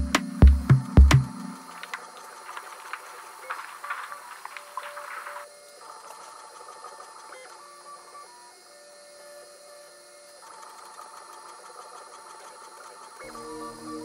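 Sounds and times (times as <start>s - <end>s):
steady high hiss: 0.0s - 5.9s
stepper motors whining: 1.6s - 14.0s.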